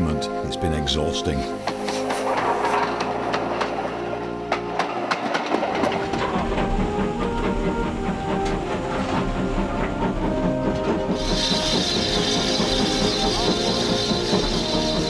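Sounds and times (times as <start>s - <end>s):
train running rumble: 0.0s - 15.0s
wheels clicking over rail joints: 1.5s - 15.0s
steam hiss: 6.0s - 15.0s.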